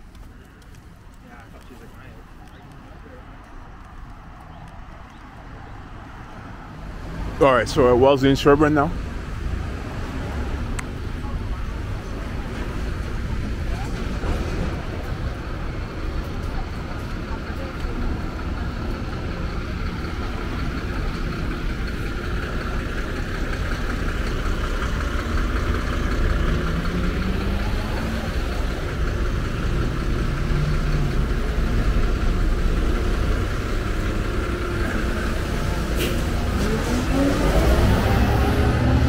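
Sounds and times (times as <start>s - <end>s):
low traffic rumble: 0.0s - 39.0s
vehicle engines idling and pulling away: 0.0s - 39.0s
engine accelerating: 8.6s - 39.0s.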